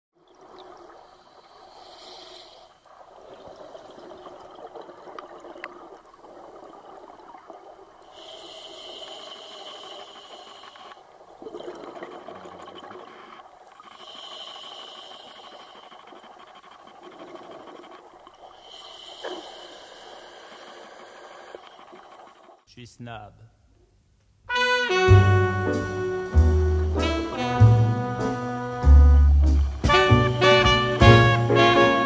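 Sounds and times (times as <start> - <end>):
regulator breathing hiss: 1.7 - 2.8, 8.2 - 11.0, 13.9 - 16.2, 18.5 - 21.7
exhaust bubbles gurgling: 10.2 - 18.7.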